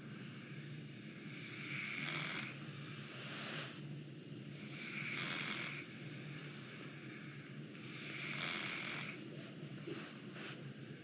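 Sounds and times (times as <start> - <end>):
low background hum: 0.0 - 11.0
man snoring through nose: 1.3 - 2.6, 4.6 - 5.9, 7.8 - 9.2.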